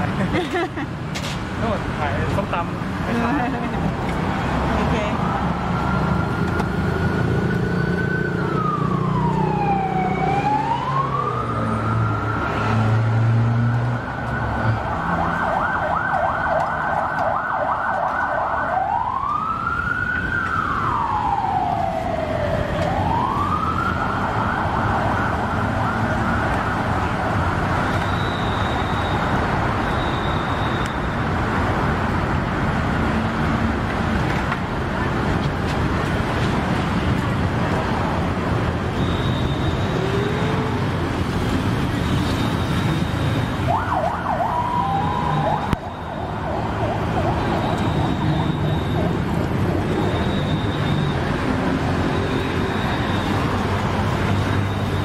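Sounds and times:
road traffic rumble: 0.0 - 55.0
emergency siren wailing and yelping: 5.2 - 12.9, 14.0 - 31.2, 42.5 - 55.0.

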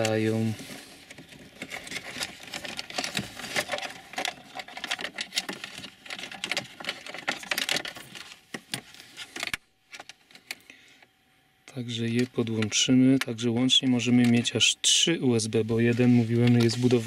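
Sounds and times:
cables scraping against plastic trim: 0.0 - 10.5, 15.9 - 17.0.

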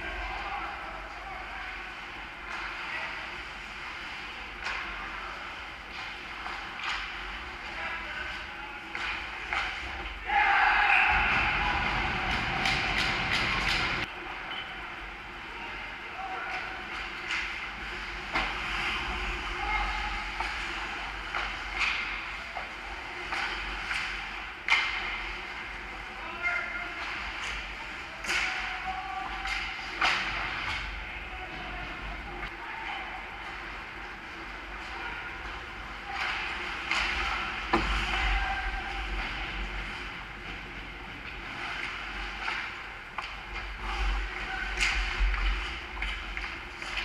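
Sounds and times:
sticks and puck clacking: 5.8 - 14.7, 16.5 - 25.5, 26.6 - 31.0, 34.8 - 47.0
steady low rumble: 11.0 - 15.5.

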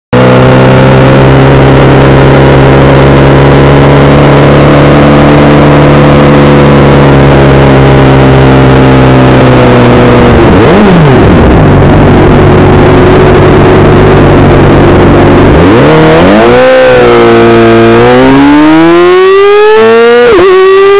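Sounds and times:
motorcycle revving: 0.1 - 20.9
motorcycle engine running: 0.2 - 20.9.

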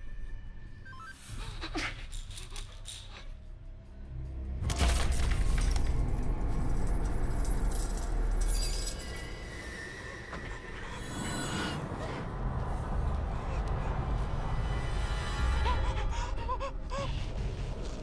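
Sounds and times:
horror music score: 0.0 - 18.0
metallic scraping and screeching: 7.7 - 12.3
low rumble: 11.8 - 18.0.

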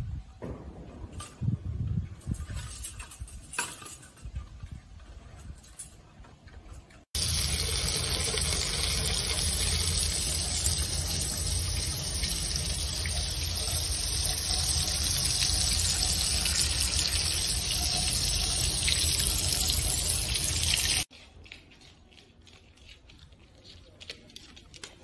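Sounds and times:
water spraying on fur: 7.2 - 21.1.

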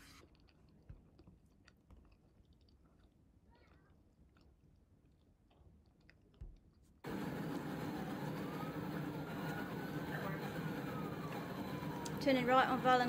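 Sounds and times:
faint rising and falling tone: 7.0 - 13.0.

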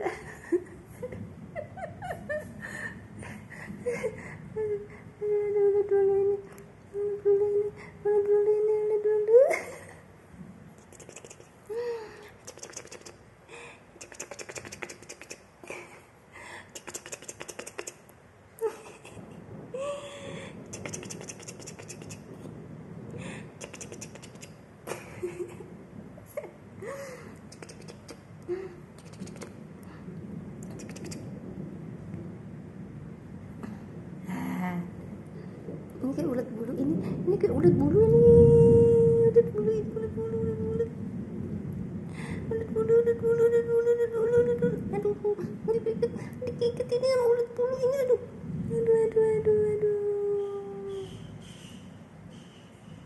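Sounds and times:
woman humming: 4.6 - 9.7, 34.2 - 35.0, 37.9 - 41.0, 42.5 - 51.2
kitten claws clicking on tiles: 10.8 - 11.5, 12.4 - 13.2, 14.0 - 15.4, 16.7 - 18.1, 20.7 - 22.3, 23.6 - 24.5, 27.5 - 28.2, 29.0 - 29.6, 30.6 - 31.2
kitten soft voice sounds: 10.8 - 13.2, 14.0 - 15.9, 16.6 - 18.1, 20.6 - 22.3, 23.6 - 24.6, 27.4 - 28.3, 28.9 - 29.6, 30.6 - 31.3.

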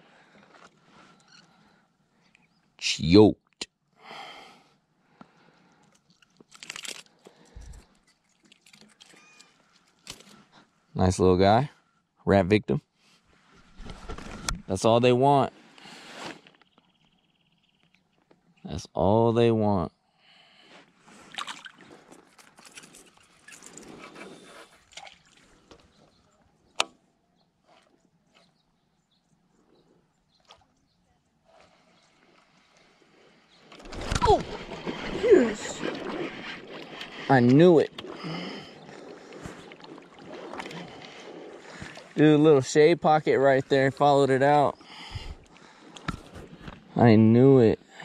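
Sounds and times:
lure hooks clicking and rustling: 5.8 - 10.4
water sloshing and splashing: 5.8 - 10.5, 21.1 - 25.9, 33.6 - 42.4.

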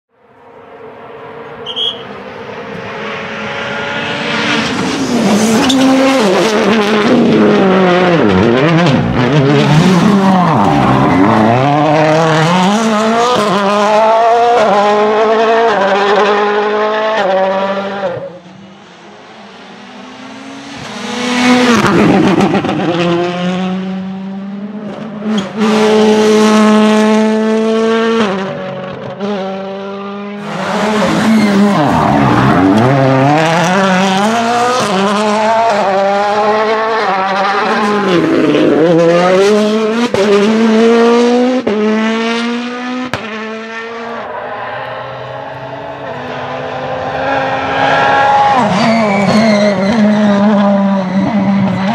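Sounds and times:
rally cars racing past: 0.4 - 51.9.

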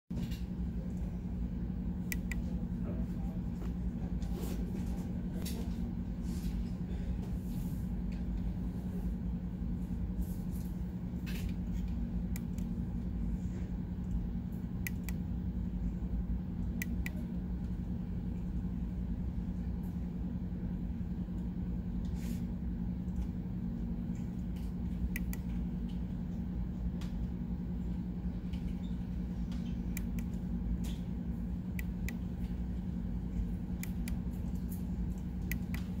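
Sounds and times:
steady low hum: 0.1 - 36.0
push buttons clicking: 2.1 - 2.4.

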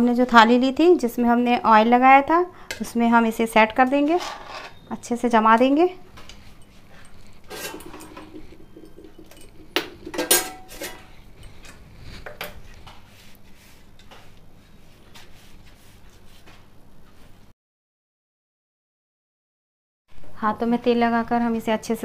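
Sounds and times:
spoon scraping and knocking pan: 7.4 - 12.6.

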